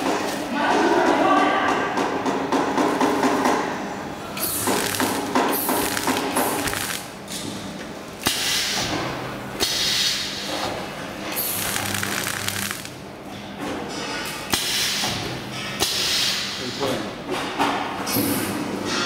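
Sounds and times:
plastic film rustling: 4.5s - 7.1s, 11.4s - 13.0s.

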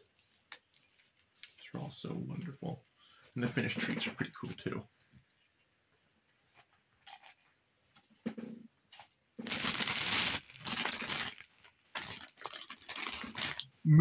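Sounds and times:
packaging rustling and crinkling: 9.4s - 13.8s.

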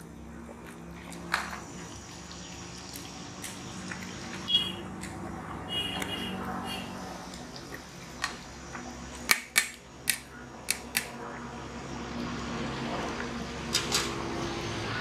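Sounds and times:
pot bubbling: 0.0s - 5.7s.

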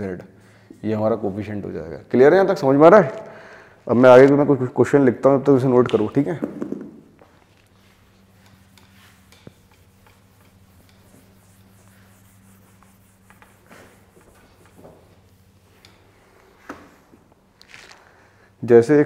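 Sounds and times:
duster wiping whiteboard: 7.5s - 17.1s.

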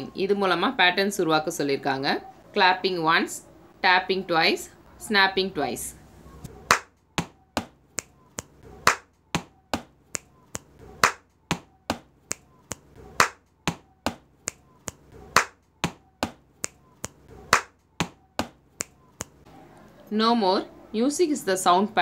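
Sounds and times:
body taps: 6.7s - 7.8s, 8.4s - 12.1s, 12.7s - 14.3s, 14.9s - 18.6s
hand clap: 6.7s - 19.4s
finger snaps: 7.9s - 9.1s, 10.1s - 11.2s, 12.2s - 13.4s, 14.4s - 15.6s, 16.6s - 17.7s, 18.7s - 19.4s.

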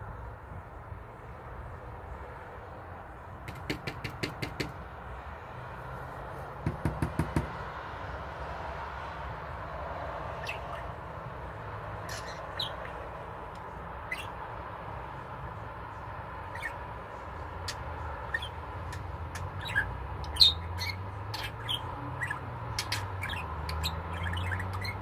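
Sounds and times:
budgerigar chirping: 10.4s - 10.9s, 12.1s - 13.0s, 14.0s - 14.4s, 16.5s - 16.8s, 17.6s - 18.6s, 19.4s - 25.0s.

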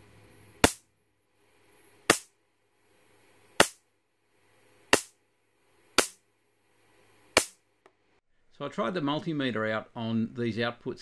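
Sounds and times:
electric sparks snapping: 0.6s - 0.8s, 2.1s - 2.3s, 3.6s - 3.8s, 4.9s - 5.2s, 6.0s - 6.2s, 7.4s - 7.6s.

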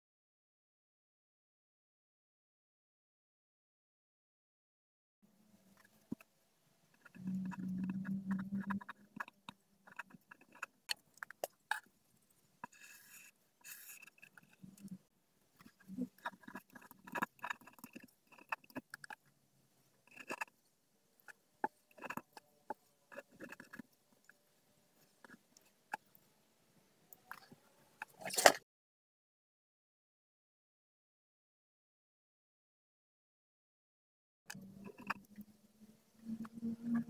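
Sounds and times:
low hum: 6.9s - 9.2s
pen scratching on paper: 6.9s - 11.8s, 15.6s - 19.2s, 21.2s - 24.0s.

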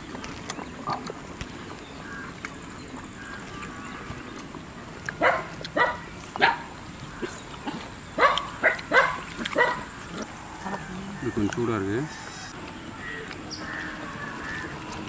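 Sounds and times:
dog barking: 5.2s - 6.7s, 8.2s - 9.9s.

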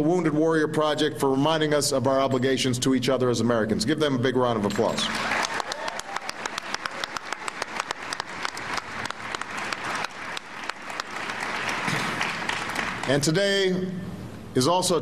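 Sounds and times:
crowd applauding: 4.7s - 13.3s.

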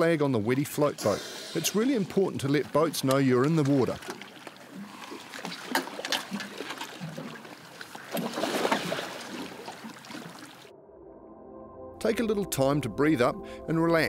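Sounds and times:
short sharp splashes: 1.8s - 10.7s
water sloshing against boat hull: 1.8s - 10.7s.

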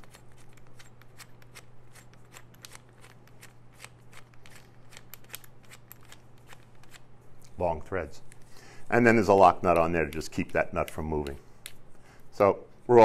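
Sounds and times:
metal nut clicking and rattling: 0.0s - 7.0s
low steady hum: 0.0s - 13.0s.

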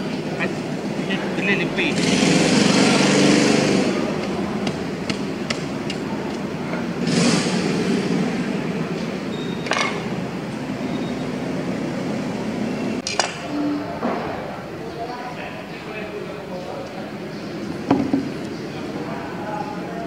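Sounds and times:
engine running: 0.0s - 13.0s.

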